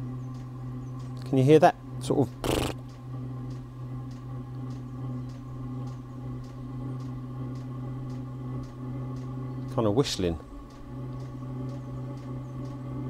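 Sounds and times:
heater exhaust low drone: 0.0 - 13.0
light ticks: 3.5 - 9.3, 10.6 - 12.8.

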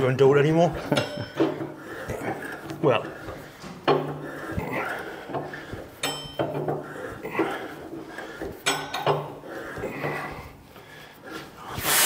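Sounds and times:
ringing metallic clinks: 6.0 - 6.6.

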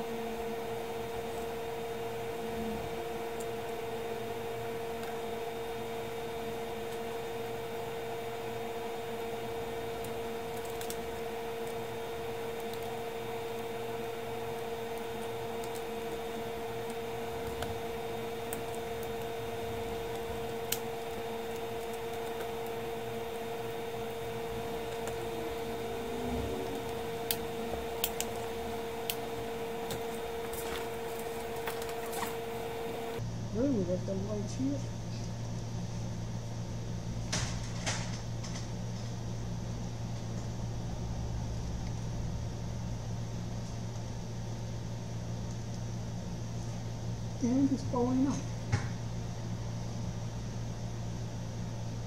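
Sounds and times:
steady hum with whine: 0.0 - 52.0.

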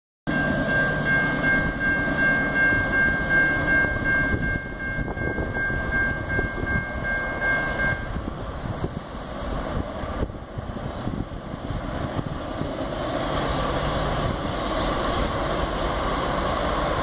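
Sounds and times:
railroad crossing bell ringing: 0.3 - 9.4.

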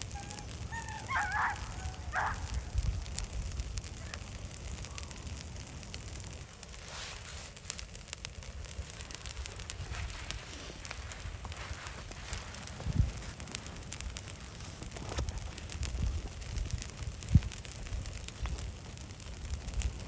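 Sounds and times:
brush fire crackling and popping: 0.0 - 20.0
low fire rumble: 0.0 - 20.0.

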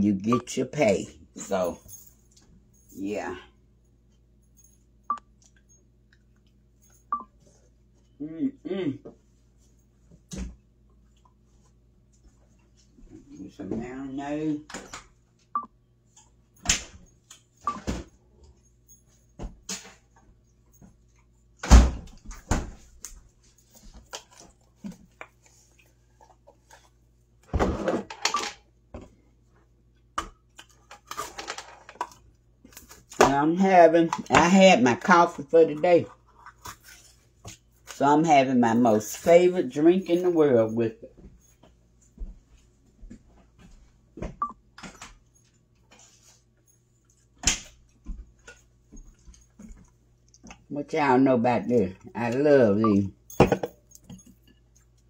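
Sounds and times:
footsteps in kitchen: 41.0 - 50.6.

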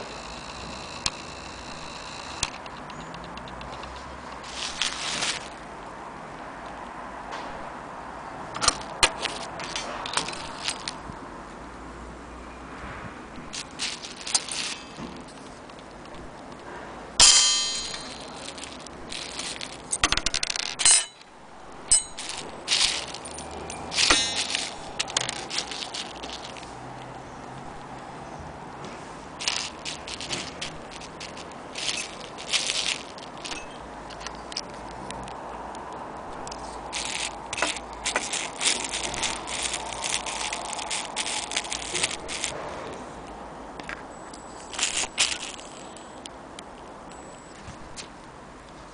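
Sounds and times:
bubble wrap crinkling: 4.4 - 5.7, 8.6 - 11.0, 13.5 - 16.4, 17.7 - 20.8, 21.5 - 28.0, 29.4 - 35.4, 36.3 - 42.6, 44.6 - 46.2
light metal clinks and rattles: 8.5 - 11.0, 13.5 - 16.3, 17.2 - 28.1, 29.4 - 35.4, 36.4 - 42.6, 43.8 - 46.3
sharp ringing metallic strikes: 17.2 - 18.3
brass clock parts clanking: 17.2 - 26.6, 29.4 - 34.4.

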